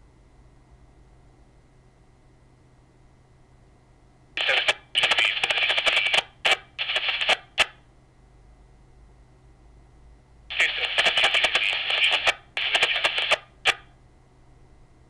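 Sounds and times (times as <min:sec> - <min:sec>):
voice over radio speaker: 0:04.4 - 0:07.4, 0:10.5 - 0:13.8.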